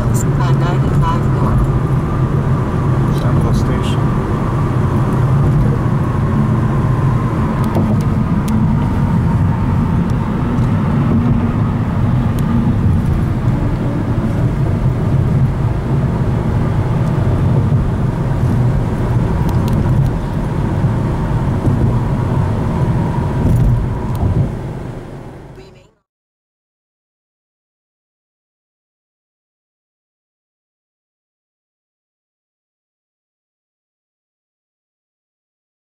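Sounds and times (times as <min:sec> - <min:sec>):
car cabin road and engine rumble: 0:00.0 - 0:26.0.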